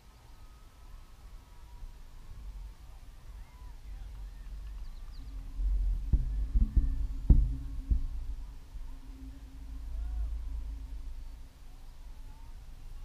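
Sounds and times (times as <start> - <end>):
faint steady hum: 0.0 - 13.0
wind buffeting microphone: 0.9 - 13.0
dull thumps: 5.6 - 9.2.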